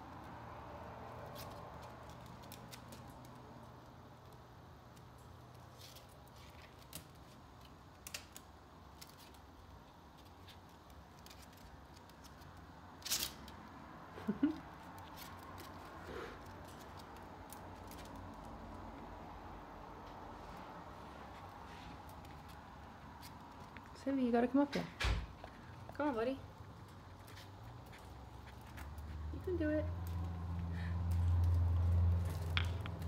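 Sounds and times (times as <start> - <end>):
claws clicking on wire cage: 1.0 - 13.8, 14.6 - 19.1, 29.9 - 33.0.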